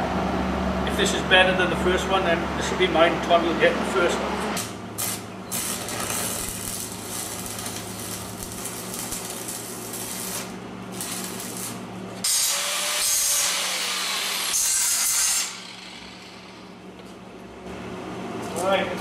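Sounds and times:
low electrical hum: 0.0s - 19.0s
welding arc crackling: 4.6s - 16.8s.

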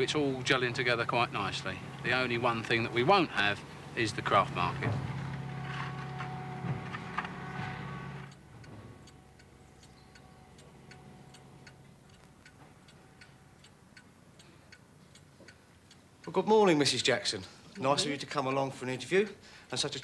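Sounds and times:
mantel clock ticking: 0.0s - 4.8s, 8.3s - 20.0s
low hum: 0.0s - 13.2s
knocks: 4.2s - 8.8s.

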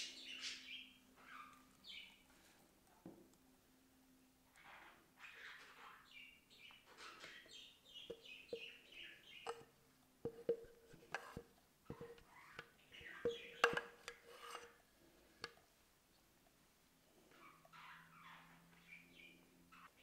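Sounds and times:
spatula scraping bowl: 9.4s - 9.7s, 10.3s - 14.8s.

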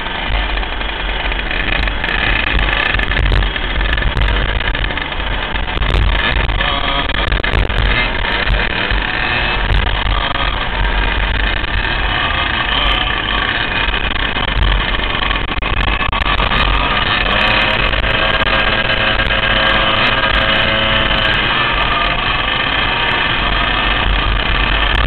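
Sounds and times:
kart engines buzzing: 0.0s - 25.0s
wind noise on camera: 0.0s - 25.0s.

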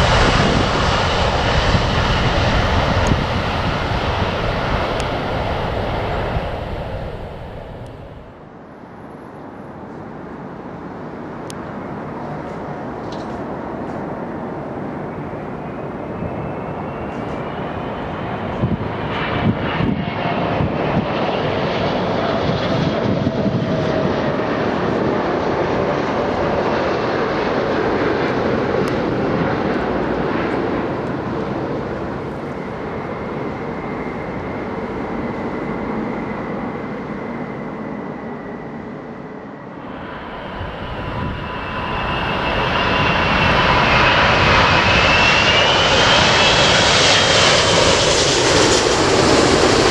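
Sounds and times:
jet engine roar: 0.0s - 8.7s, 10.3s - 49.9s
high jet engine whine: 0.0s - 49.9s.

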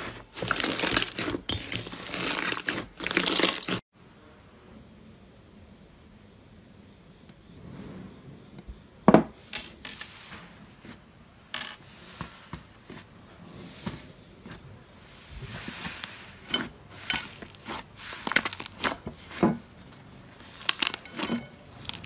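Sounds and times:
slime crackling and popping: 20.4s - 22.0s.

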